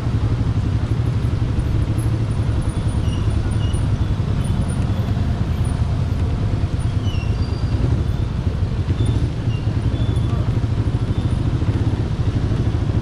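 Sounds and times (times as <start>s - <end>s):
motorcycle engine at low speed: 0.0s - 13.0s.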